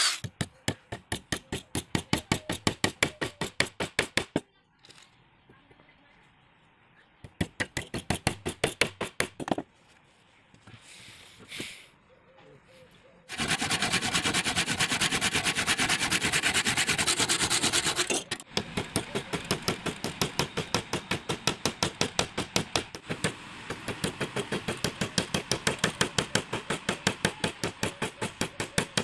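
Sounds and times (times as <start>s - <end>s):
hammer driving a nail into wood: 18.5s - 29.0s.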